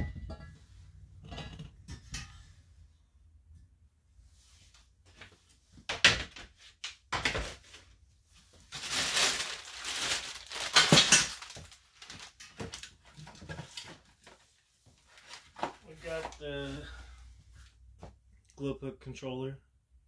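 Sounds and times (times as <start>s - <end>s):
plastic bag crinkling: 8.7s - 13.2s
parts knocking in plastic tote: 9.4s - 13.8s.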